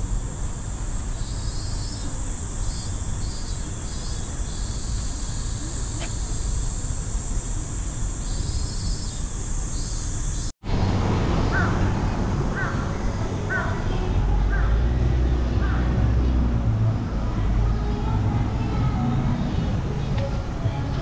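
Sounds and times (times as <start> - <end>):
high insect buzz: 0.0 - 10.5
crow cawing: 12.6 - 13.8.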